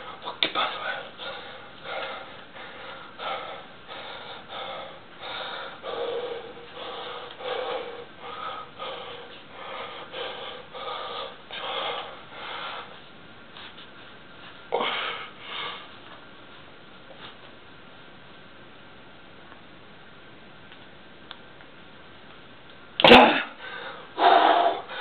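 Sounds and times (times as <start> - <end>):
man breathing hard: 0.0 - 13.0, 14.7 - 16.0, 23.5 - 25.0
man grunting: 23.0 - 23.6.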